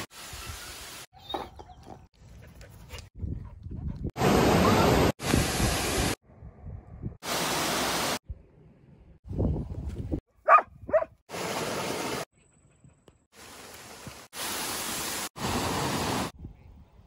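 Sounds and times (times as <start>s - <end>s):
waterfall rushing: 13.4s - 16.3s.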